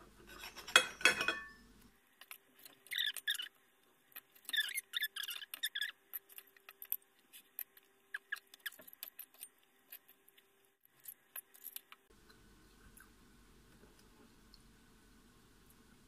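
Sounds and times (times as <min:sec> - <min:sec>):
knife and fork scraping on plate: 0:00.2 - 0:01.6.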